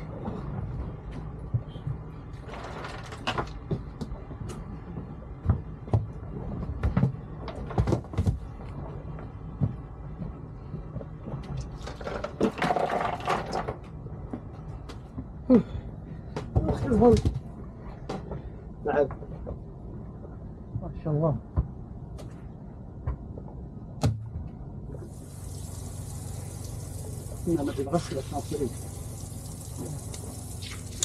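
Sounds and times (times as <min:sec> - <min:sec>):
low steady rumble: 0:13.7 - 0:31.0.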